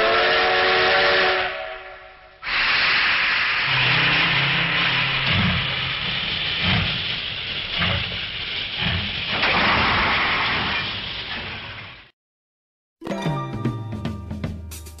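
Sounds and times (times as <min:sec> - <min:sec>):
low locomotive chuffs: 0:00.0 - 0:09.4
steam locomotive hissing: 0:00.0 - 0:11.8.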